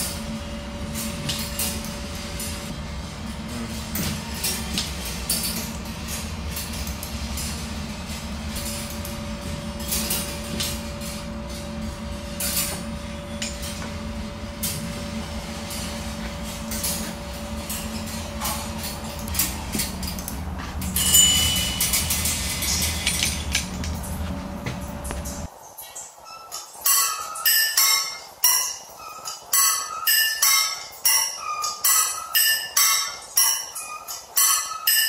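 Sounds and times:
bright bell-like ring: 21.0 - 21.9.

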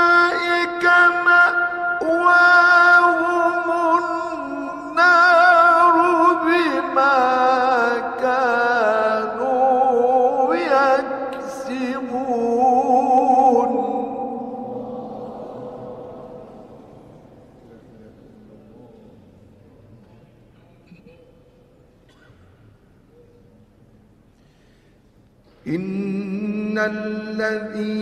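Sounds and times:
man reciting in melismatic chant: 0.0 - 19.6, 25.5 - 28.0.

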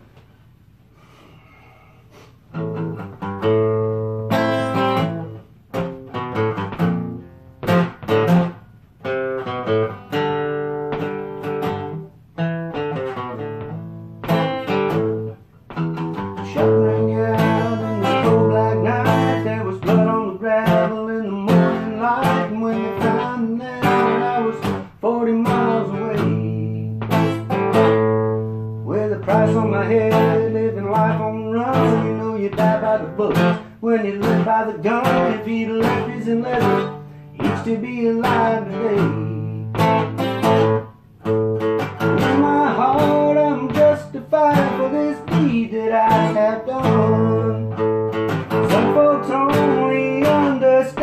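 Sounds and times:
acoustic guitar playing: 2.3 - 51.0.

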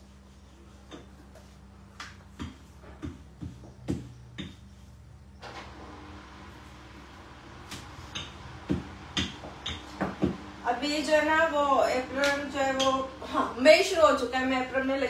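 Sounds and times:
utensils knocking on counter: 8.2 - 10.4.

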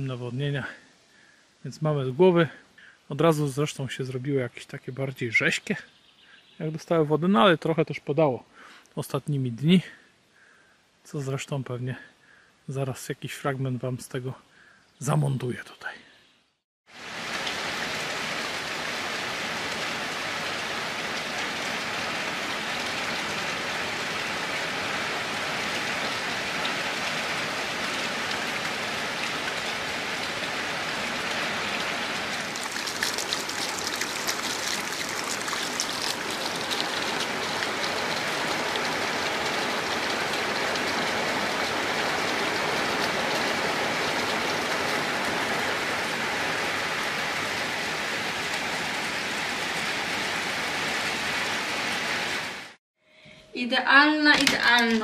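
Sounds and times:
steady rain: 16.9 - 52.8.

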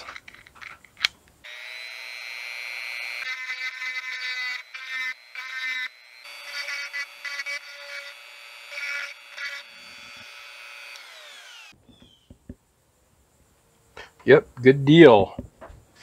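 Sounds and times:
rotary tool grinding metal: 1.5 - 11.8
tool winding down: 4.4 - 11.8.

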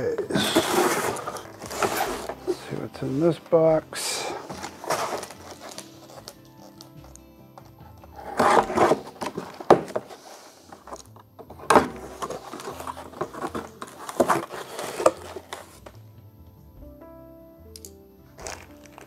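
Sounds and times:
cardboard box tearing open: 0.2 - 2.6, 4.2 - 6.4, 8.2 - 10.9, 11.7 - 15.8.

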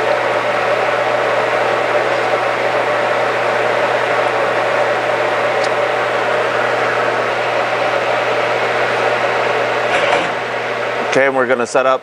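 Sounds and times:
lathe humming and hissing: 0.0 - 12.0.

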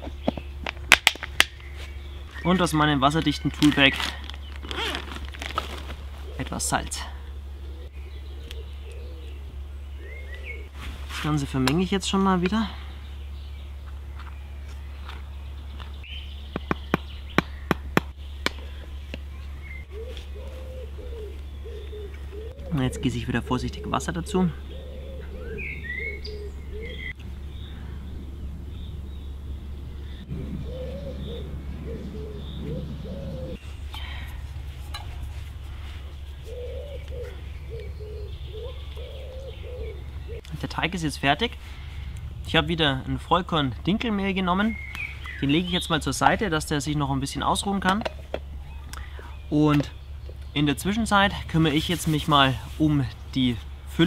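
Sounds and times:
birds calling: 0.0 - 54.0
steady low hum: 0.0 - 54.0
dove cooing: 6.0 - 10.8, 18.5 - 40.6.

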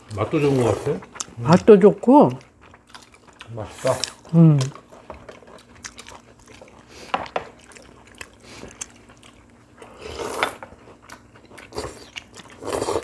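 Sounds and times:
people chewing: 0.0 - 13.0
slurping noodles: 9.8 - 10.6, 11.7 - 13.0.

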